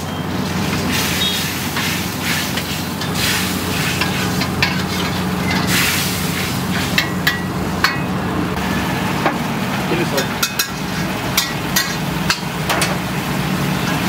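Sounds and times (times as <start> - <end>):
sauce sizzling and bubbling: 0.0 - 9.9, 10.6 - 14.0
ladle scraping a wok: 0.7 - 7.2, 10.5 - 12.1.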